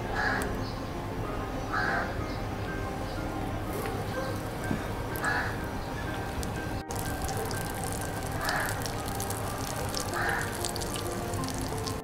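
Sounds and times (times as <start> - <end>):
fish sizzling in hot oil: 6.3 - 12.0.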